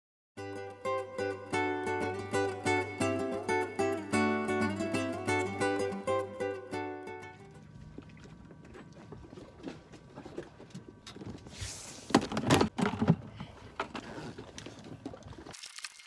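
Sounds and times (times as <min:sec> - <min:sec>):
wind: 0:04.8 - 0:16.0
water: 0:07.0 - 0:12.4, 0:13.3 - 0:16.0.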